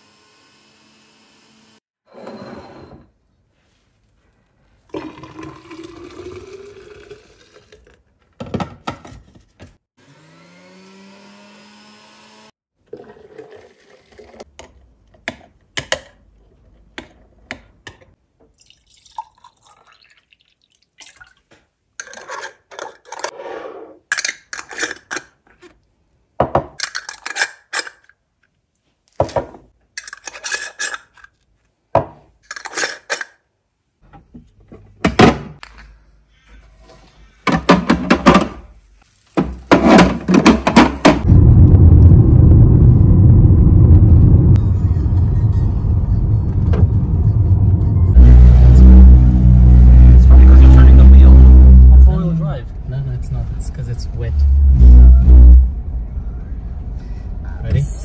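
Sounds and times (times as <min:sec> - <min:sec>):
juice poured into glass bottle: 0:04.9 - 0:08.0, 0:18.5 - 0:21.4
metal screw lids clinking: 0:26.8 - 0:28.1.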